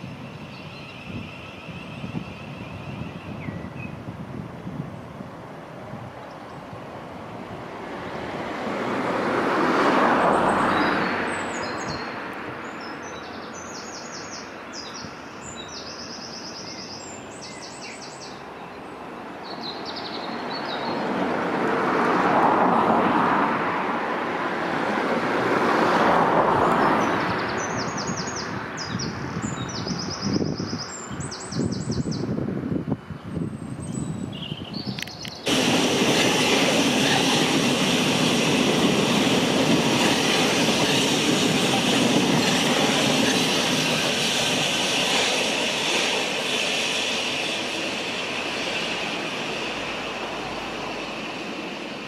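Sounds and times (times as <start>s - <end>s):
passing vehicles rushing: 7.4s - 12.8s, 35.4s - 52.0s.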